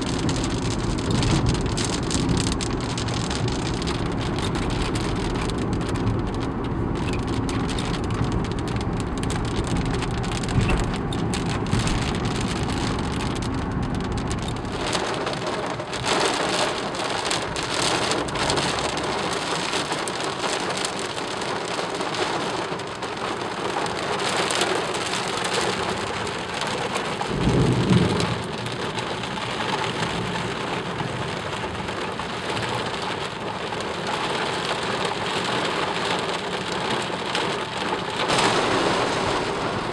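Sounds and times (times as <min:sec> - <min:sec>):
low rumble: 0:00.0 - 0:15.4
rain drumming on car roof: 0:00.0 - 0:39.9.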